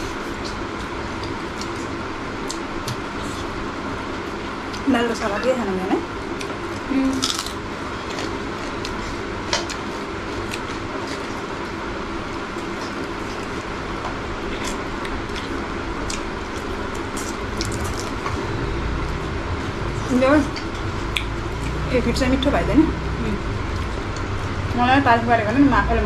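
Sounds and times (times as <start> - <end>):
wet chewing and smacking: 6.3 - 11.6, 14.5 - 18.5, 20.5 - 21.9.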